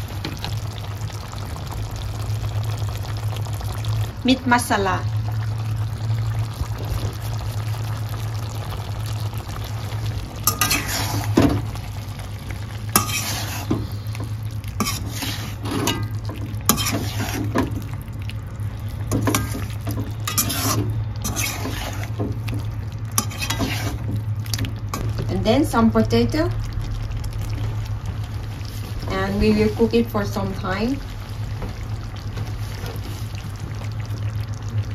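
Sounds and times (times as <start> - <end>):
light sizzle: 0.0 - 34.9
steady low hum: 0.0 - 34.9
spatula scraping frying pan: 10.4 - 11.5, 12.9 - 14.0, 14.8 - 17.7, 19.1 - 22.2, 23.2 - 24.1.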